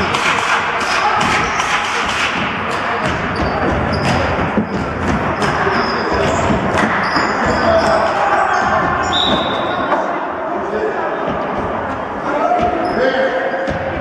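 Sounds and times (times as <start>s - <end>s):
basketball bouncing on floor: 3.0s - 8.0s
sneaker squeaks: 3.0s - 10.0s, 12.4s - 13.7s.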